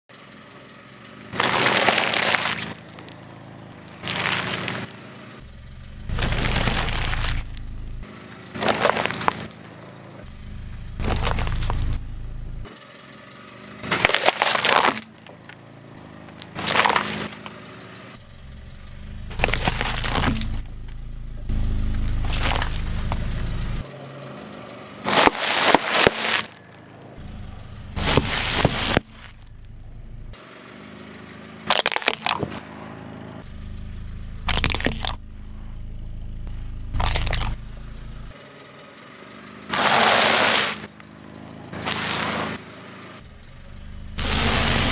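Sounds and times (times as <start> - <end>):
low rumble of slow car: 0.0 - 44.9
packaging crushed under a tire: 1.4 - 2.8, 4.0 - 4.8, 6.2 - 7.5, 8.6 - 9.6, 11.0 - 11.9, 13.9 - 15.2, 16.6 - 17.3, 25.1 - 26.6, 34.5 - 35.2, 39.7 - 40.9.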